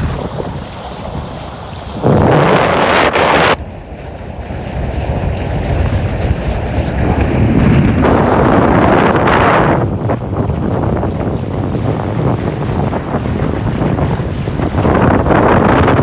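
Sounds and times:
water washing against hull: 0:00.0 - 0:16.0
wind buffeting microphone: 0:00.0 - 0:16.0.

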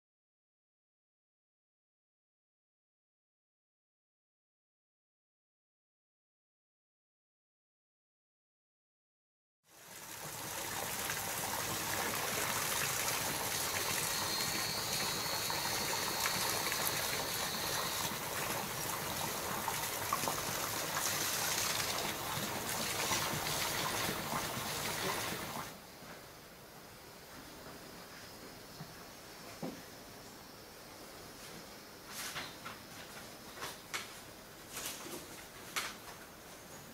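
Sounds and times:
stream running water: 0:09.7 - 0:25.8
faint high steady tone: 0:13.6 - 0:18.2.

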